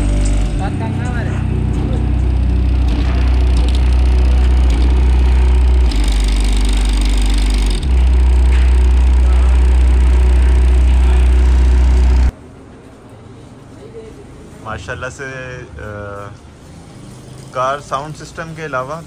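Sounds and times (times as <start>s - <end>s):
subwoofer deep bass notes: 0.0s - 12.3s.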